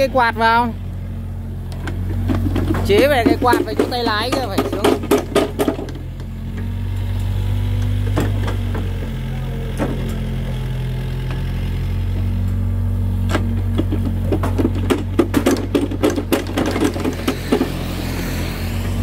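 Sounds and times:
excavator diesel engine running: 0:00.0 - 0:19.0
sharp knocks: 0:02.2 - 0:06.0.

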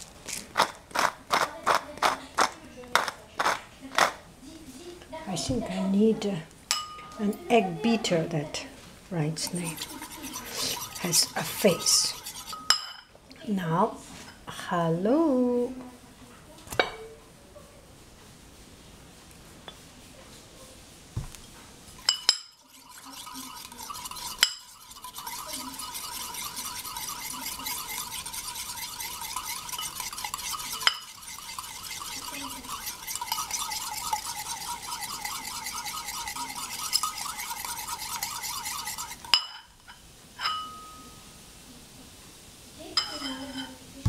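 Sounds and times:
wire whisk rattling in bowl: 0:09.4 - 0:12.9, 0:22.0 - 0:39.6
whisk tapping on bowl: 0:09.4 - 0:13.0, 0:22.0 - 0:39.6.

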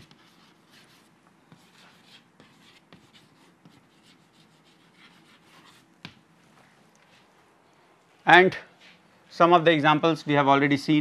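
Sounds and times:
chalk scratching on chalkboard: 0:00.0 - 0:06.2
chalk tapping on board: 0:00.0 - 0:06.2.

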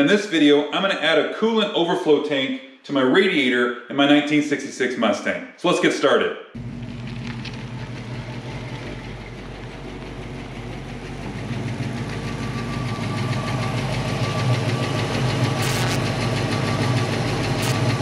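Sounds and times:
car engine approaching slowly: 0:06.6 - 0:18.0.

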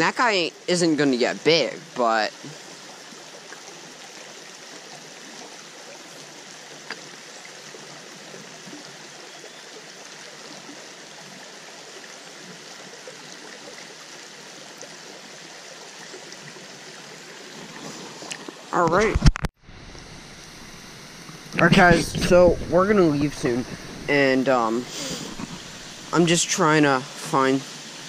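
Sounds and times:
stream running over rocks: 0:00.0 - 0:28.0.

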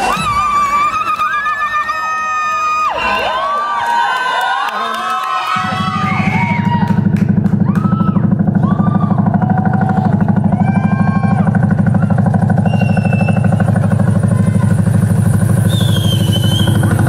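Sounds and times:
dance music over loudspeakers: 0:05.4 - 0:17.0
heavy low drone with fast pulse: 0:05.5 - 0:17.0.

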